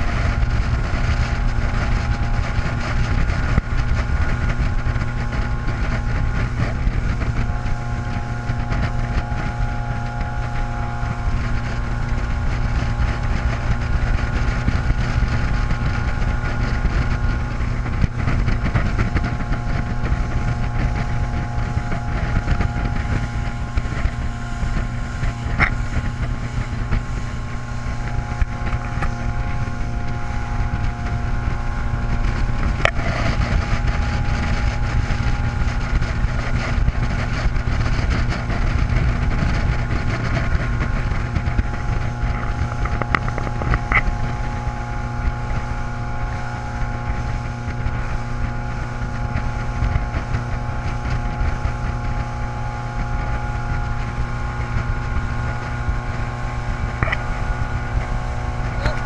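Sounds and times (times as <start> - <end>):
motorboat engine running: 0.0 - 59.0
rush of boat wake: 0.0 - 59.0
wind buffeting microphone: 0.0 - 59.0.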